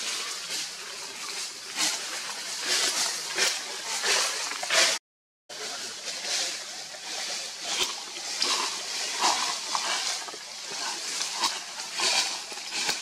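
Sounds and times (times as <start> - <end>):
outdoor rustling: 5.6 - 13.0.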